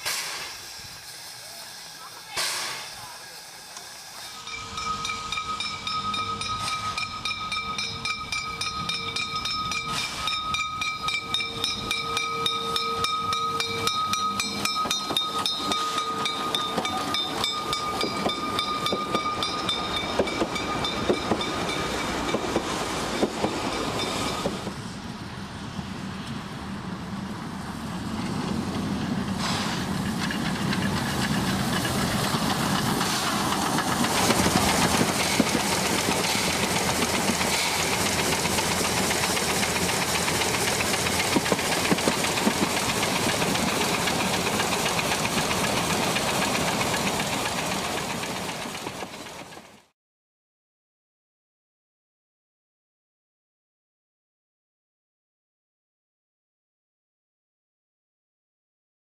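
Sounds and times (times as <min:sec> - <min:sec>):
steam hissing: 0:00.0 - 0:25.0, 0:28.5 - 0:49.6
knocking of locomotive running gear: 0:03.8 - 0:24.8, 0:28.2 - 0:49.9
steady high tone: 0:04.3 - 0:22.4.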